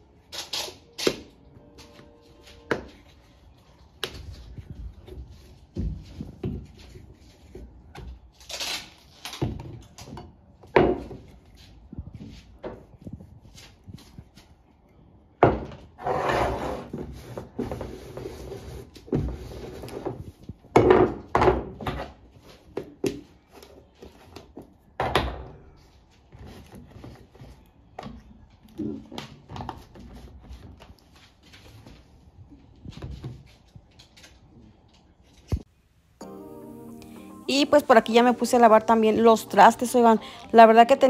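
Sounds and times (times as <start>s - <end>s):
containers scraping on countertop: 16.0s - 20.2s.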